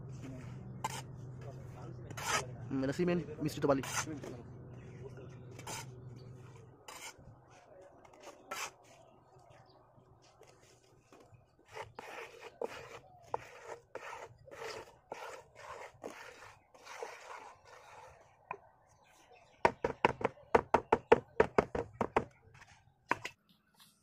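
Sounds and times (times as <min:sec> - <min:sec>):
hand tool scraping cement: 0:02.1 - 0:02.5, 0:03.8 - 0:04.4, 0:05.5 - 0:05.9, 0:06.9 - 0:07.2, 0:08.1 - 0:08.8, 0:11.6 - 0:18.2.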